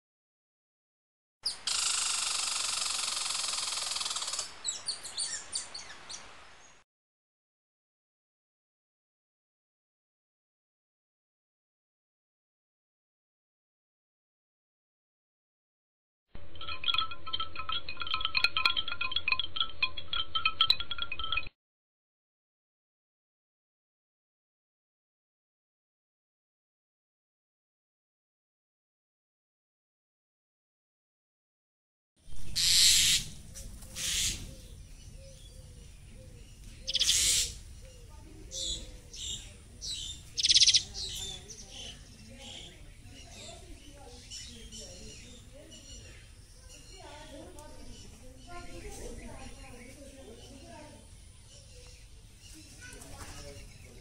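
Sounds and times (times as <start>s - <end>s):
young cuckoo harsh hissing calls: 1.6s - 5.8s, 32.5s - 34.8s, 36.9s - 42.7s
tinkling chime-like high notes: 16.4s - 21.5s.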